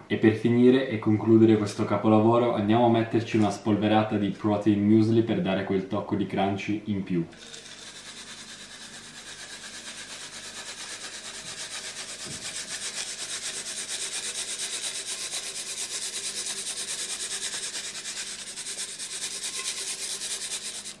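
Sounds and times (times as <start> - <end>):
muesli rattling in shaken canister: 7.3 - 21.0.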